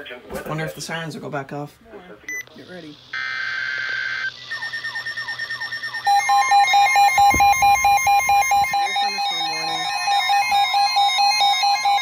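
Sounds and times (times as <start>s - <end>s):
data tones burst: 2.3s - 11.0s
alarm beeping: 2.3s - 12.0s
steady warning tone: 2.6s - 12.0s
falling chirps: 4.3s - 8.8s.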